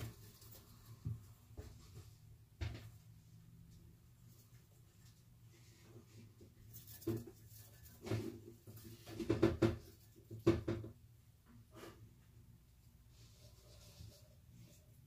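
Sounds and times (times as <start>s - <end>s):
knocks and clatters of handling: 6.6s - 11.0s.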